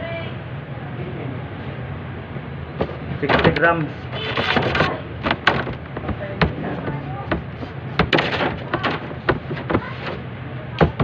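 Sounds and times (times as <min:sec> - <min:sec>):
dough knocking on metal table: 0:03.2 - 0:10.2, 0:10.8 - 0:11.0.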